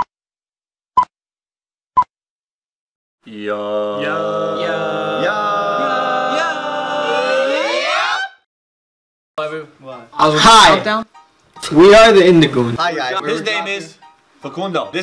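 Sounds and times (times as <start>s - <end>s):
group of voices singing a chord: 3.3s - 7.9s.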